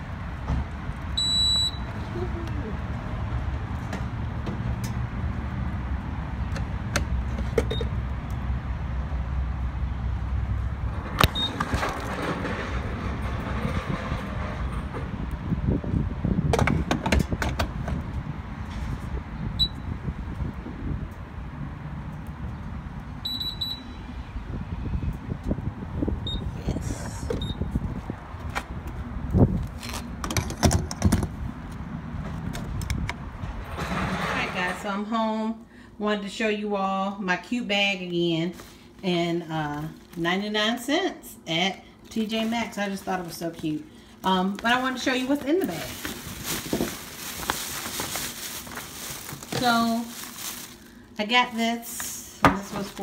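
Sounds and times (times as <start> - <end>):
low rumble of traffic: 0.0 - 53.0
short high beep: 1.2 - 1.8
gas pump beep: 1.2 - 1.9, 7.7 - 8.0, 11.2 - 11.7, 19.6 - 19.9, 23.2 - 24.1, 26.2 - 26.5, 27.3 - 27.7.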